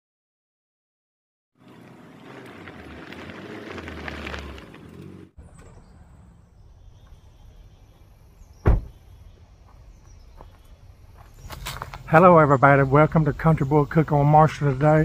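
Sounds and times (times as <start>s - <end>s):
tyres crunching on dirt: 1.6s - 6.1s, 8.4s - 15.0s
insects chirping: 5.8s - 15.0s
car door slamming: 8.6s - 9.0s.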